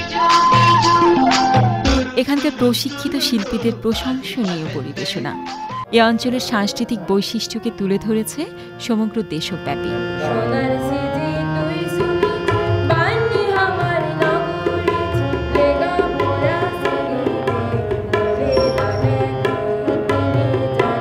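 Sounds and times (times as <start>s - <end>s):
harmonium chords: 2.1s - 21.0s
child singing: 10.2s - 21.0s
tabla strokes: 11.9s - 21.0s.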